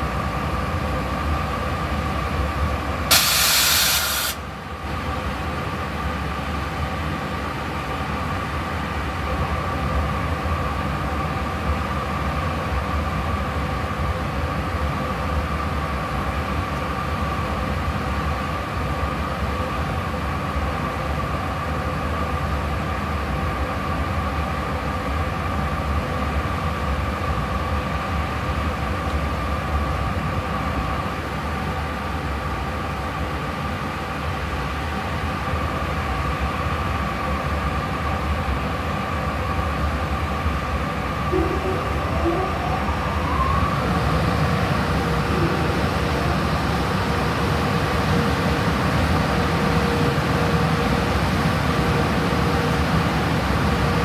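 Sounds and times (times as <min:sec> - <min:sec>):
electric locomotive humming: 0:00.0 - 0:54.0
loud air release hiss: 0:03.1 - 0:04.5.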